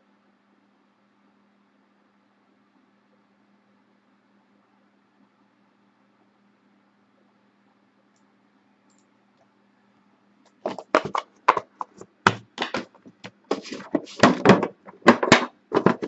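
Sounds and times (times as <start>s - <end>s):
faint steady hum: 0.0s - 16.0s
cardboard box knocks and scrapes: 10.7s - 16.0s.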